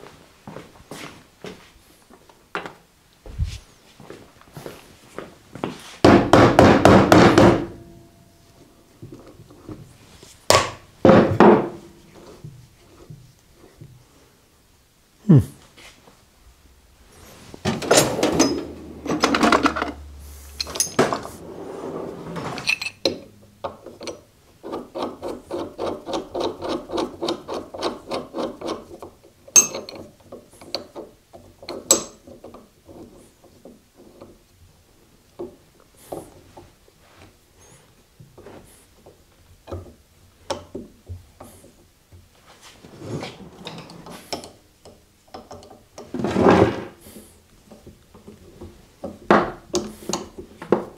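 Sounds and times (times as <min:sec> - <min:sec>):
tools clattering and knocking: 0:10.5 - 0:13.2, 0:17.6 - 0:21.4, 0:22.4 - 0:34.4, 0:43.4 - 0:46.9.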